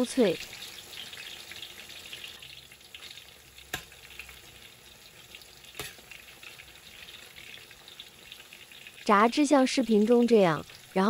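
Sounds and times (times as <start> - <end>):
deep-frying sizzle in oil: 0.0 - 11.0
metal spatula knocking wok: 5.7 - 6.0.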